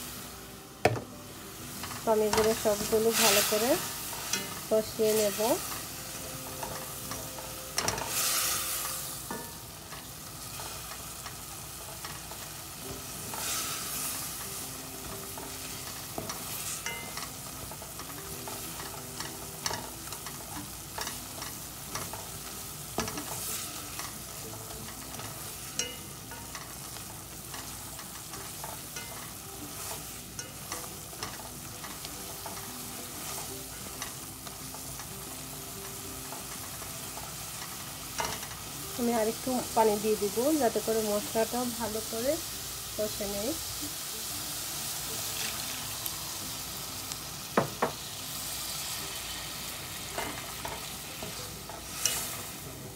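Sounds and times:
food sizzling in oil: 0.0 - 52.9.

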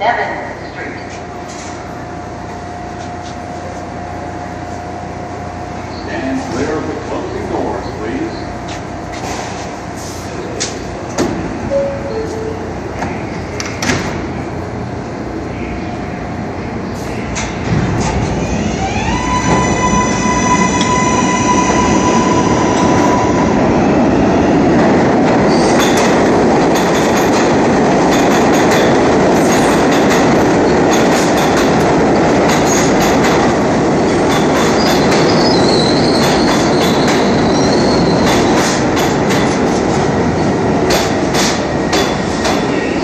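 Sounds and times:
train rumbling past: 0.0 - 43.0
train wheels squealing: 34.6 - 38.5.

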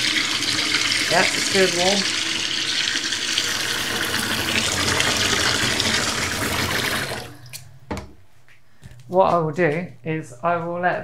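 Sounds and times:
tap water running into sink: 0.0 - 7.6.

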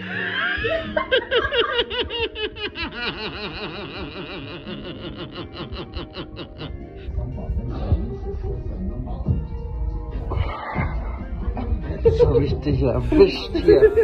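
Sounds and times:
person laughing rapidly: 0.0 - 7.1, 13.0 - 14.0.

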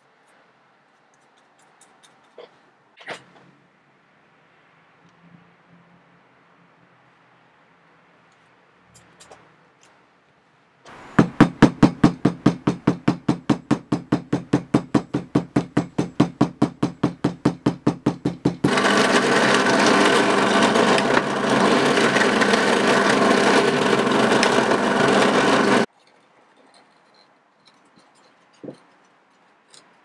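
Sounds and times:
loud harsh steady noise: 18.6 - 25.9.

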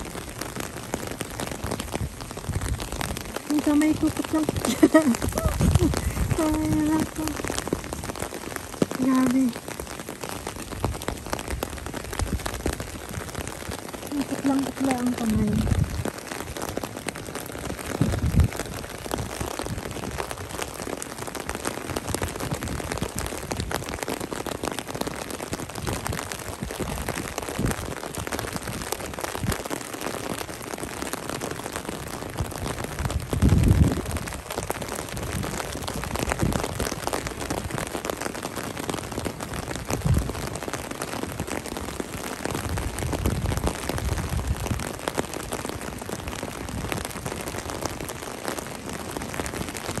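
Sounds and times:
rain on asphalt and puddles: 0.0 - 50.0
low rumbles: 4.0 - 9.6.

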